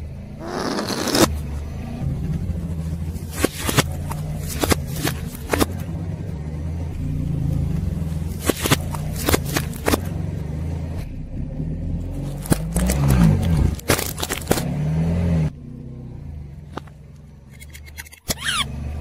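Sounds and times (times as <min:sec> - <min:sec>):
car engine idling: 0:00.0 - 0:14.7
exhaust pops and crackles: 0:02.3 - 0:05.9, 0:07.9 - 0:10.2, 0:12.2 - 0:14.8.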